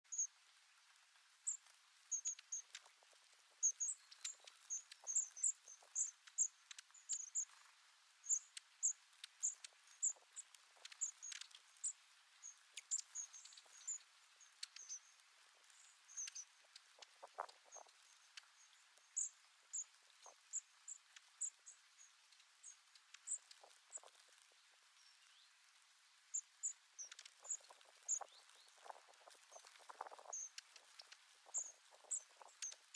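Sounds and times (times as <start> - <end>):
high-pitched bird calls: 27.0 - 32.9.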